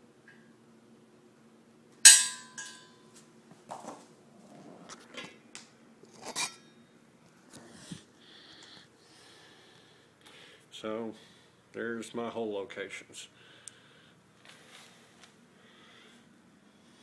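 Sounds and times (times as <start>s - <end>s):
center punch striking steel: 2.1s - 2.9s
light metal clinks and taps: 2.1s - 2.9s.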